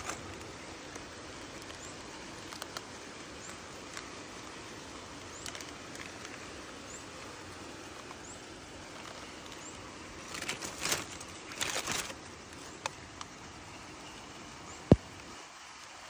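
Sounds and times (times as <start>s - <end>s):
small clicks: 0.0s - 4.5s
rustling and scraping: 0.0s - 4.6s, 7.8s - 12.9s
steady rain: 0.0s - 16.0s.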